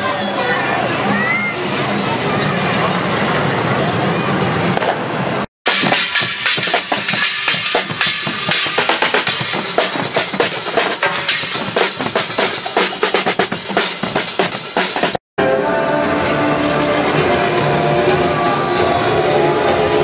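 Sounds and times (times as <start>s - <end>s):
drum band pounding steady beat: 5.7s - 15.2s.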